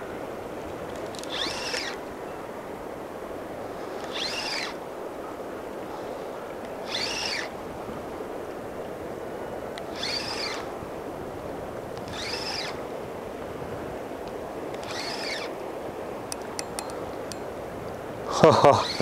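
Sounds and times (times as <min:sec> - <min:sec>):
bird calling: 0:03.8 - 0:07.7, 0:14.8 - 0:19.0.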